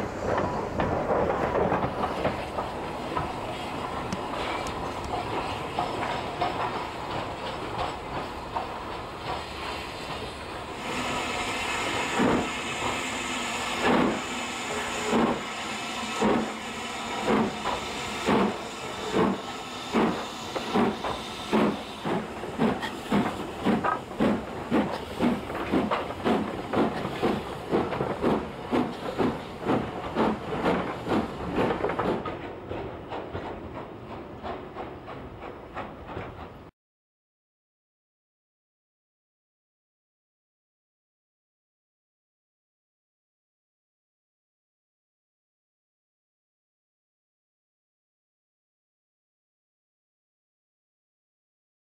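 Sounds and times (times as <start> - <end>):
steam locomotive exhaust chuffs: 0.2 - 36.7
hiss of steam: 8.4 - 31.6.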